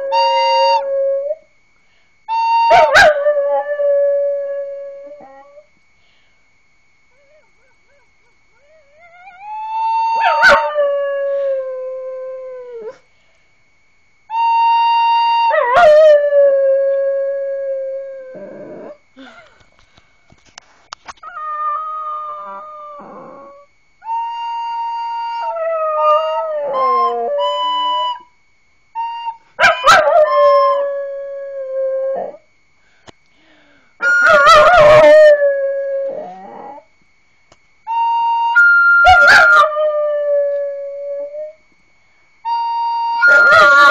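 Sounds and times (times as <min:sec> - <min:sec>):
recorder playing long notes: 0:00.0 - 0:06.3, 0:08.6 - 0:13.4, 0:14.3 - 0:19.5, 0:21.3 - 0:32.2, 0:32.8 - 0:36.8, 0:37.8 - 0:43.9
dog howling: 0:07.2 - 0:11.4, 0:21.2 - 0:23.7, 0:34.0 - 0:36.9, 0:42.5 - 0:43.9.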